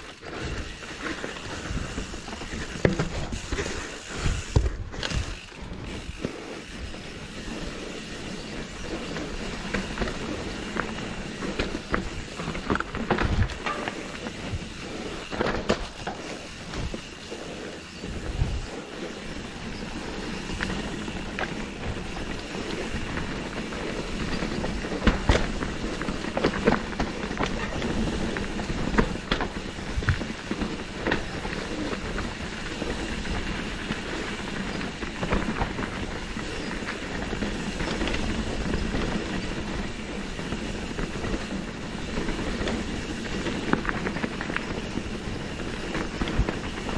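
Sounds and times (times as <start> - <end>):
bike tyres rattling rumble: 0.0 - 46.9
wheels knocking on rocks: 0.0 - 46.9
bike knocking on rocks: 2.4 - 6.2, 9.4 - 17.0, 20.5 - 32.2
tyres crunching over stones: 7.7 - 17.0.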